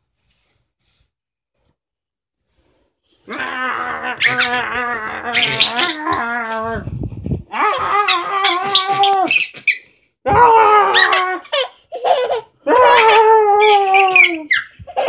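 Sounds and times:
baby laughing: 0:04.1 - 0:06.6, 0:10.9 - 0:15.0.

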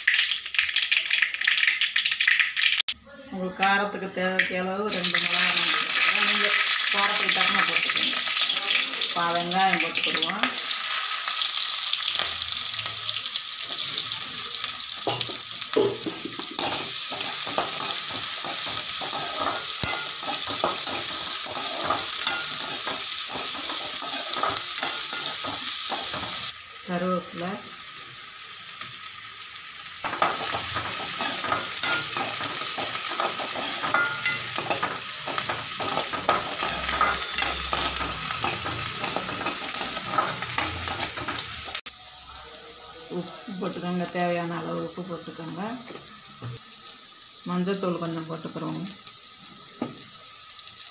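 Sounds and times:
onions sizzling in hot oil: 0:00.0 - 0:50.9
spatula scraping metal pan: 0:16.5 - 0:26.5, 0:30.0 - 0:41.7.

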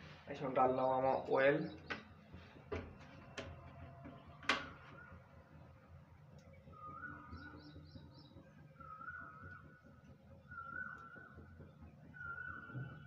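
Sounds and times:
faint bird chirps: 0:03.6 - 0:13.0.

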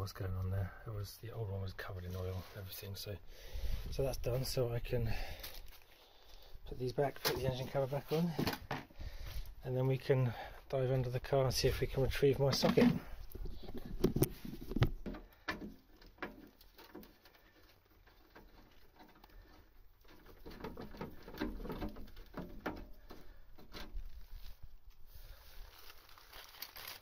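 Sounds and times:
rustling: 0:12.5 - 0:27.0.

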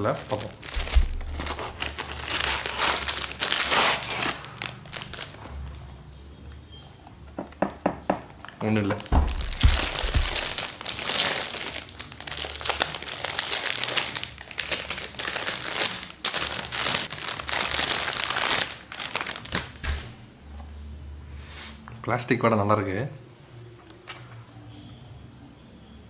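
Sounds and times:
plastic wrapping crinkling: 0:00.0 - 0:05.9, 0:08.3 - 0:20.2.

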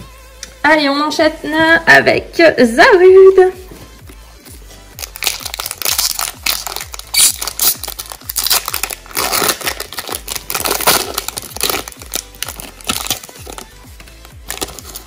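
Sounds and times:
foil wrapper tearing and crinkling: 0:05.0 - 0:15.0.

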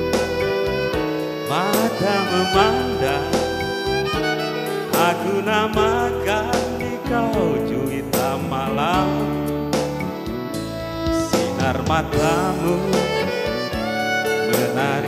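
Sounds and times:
violin melody with vibrato: 0:00.0 - 0:06.4, 0:10.0 - 0:15.0
electric keyboard: 0:00.0 - 0:15.0.

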